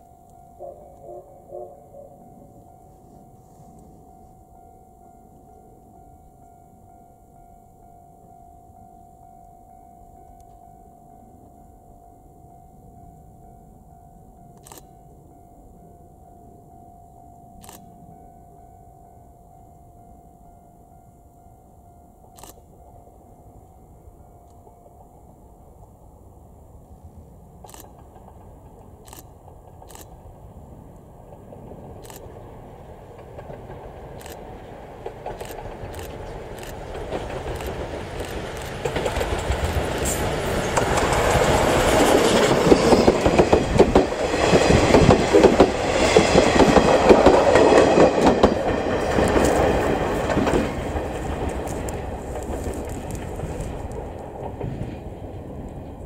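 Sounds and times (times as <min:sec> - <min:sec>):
steam locomotive passing: 0:00.0 - 0:14.4, 0:22.6 - 0:56.0
wheels clattering over rail joints: 0:27.9 - 0:30.5, 0:31.1 - 0:56.0.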